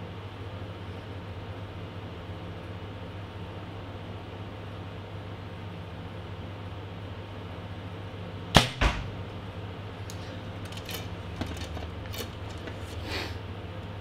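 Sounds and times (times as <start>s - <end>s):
arrow striking target: 8.6s - 9.3s
arrow handling clicks and rattles: 10.0s - 12.9s.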